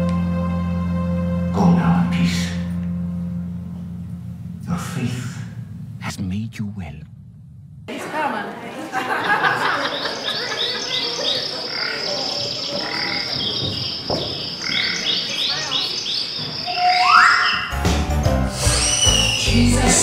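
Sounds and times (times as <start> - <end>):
insect chirps: 9.8 - 17.8, 18.7 - 19.6
frog croaks: 9.9 - 17.8
band music: 17.5 - 20.0.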